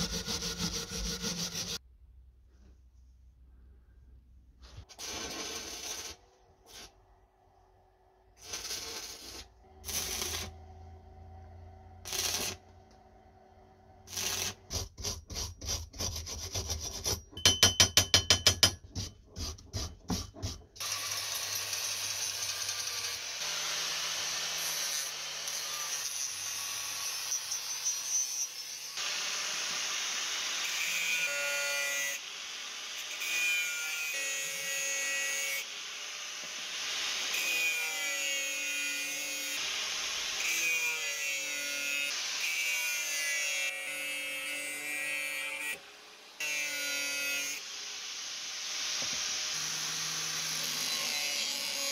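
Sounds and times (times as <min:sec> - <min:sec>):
arc welding crackling: 0:08.4 - 0:10.5, 0:12.0 - 0:12.6, 0:14.1 - 0:14.6
angle grinder grinding steel: 0:08.4 - 0:13.0.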